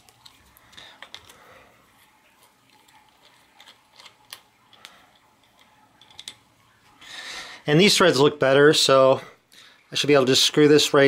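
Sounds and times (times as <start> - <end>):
small metal parts clicking: 0.0 - 1.4, 2.7 - 6.4.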